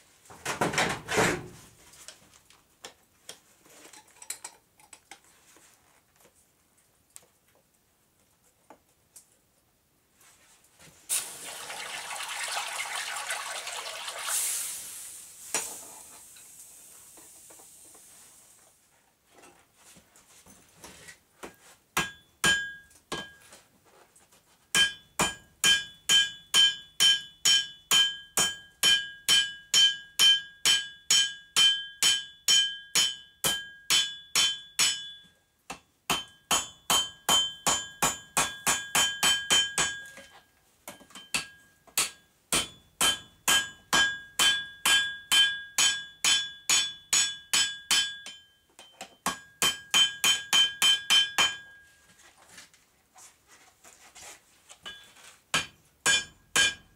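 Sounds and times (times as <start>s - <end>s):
hammer striking metal on anvil: 22.0s - 23.4s, 24.7s - 40.3s, 40.9s - 51.8s, 54.9s - 56.9s.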